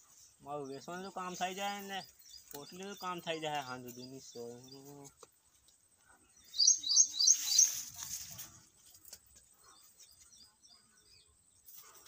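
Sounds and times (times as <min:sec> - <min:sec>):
bird chirping: 0:00.0 - 0:08.0, 0:09.3 - 0:12.0
leaves and vines rustling: 0:06.5 - 0:10.2.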